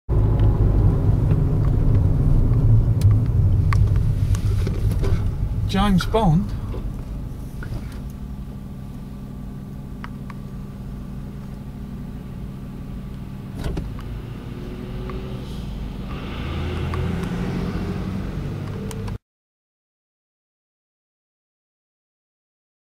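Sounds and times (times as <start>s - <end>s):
car engine idling: 0.1s - 19.2s
hiss: 15.2s - 17.9s.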